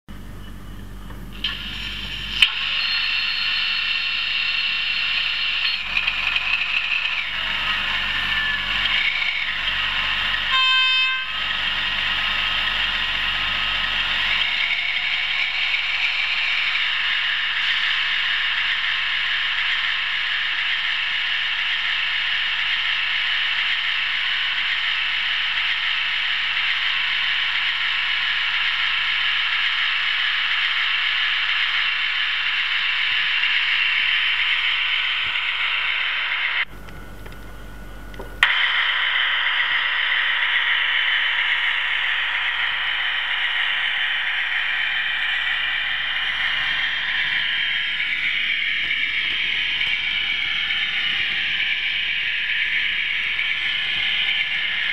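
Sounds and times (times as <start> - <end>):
click: 36.8 - 38.6.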